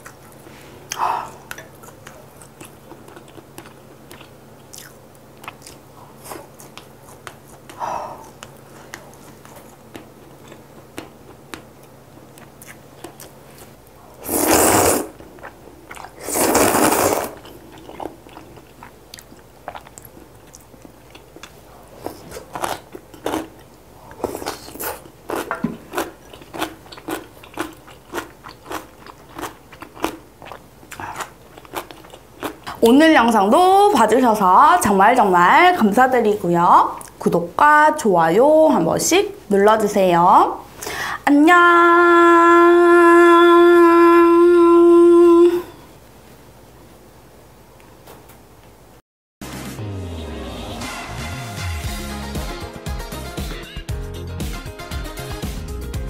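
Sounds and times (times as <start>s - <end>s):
chewing: 0.0s - 13.9s, 15.1s - 32.9s
noodle slurping: 14.2s - 15.2s, 15.9s - 18.5s.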